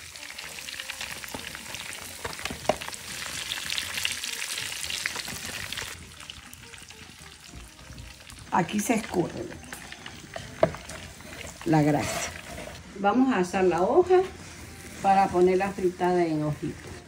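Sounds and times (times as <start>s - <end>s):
pork sizzling in fat: 0.0s - 17.0s.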